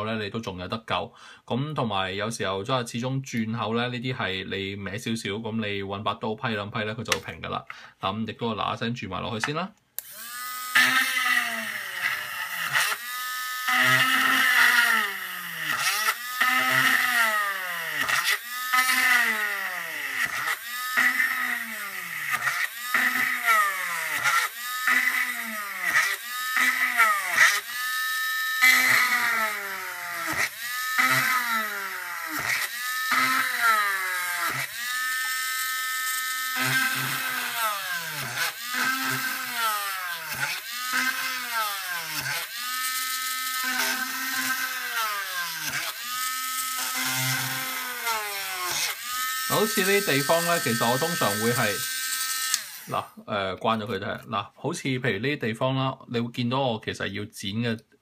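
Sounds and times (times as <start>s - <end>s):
electric drill boring plastic: 10.0s - 53.1s.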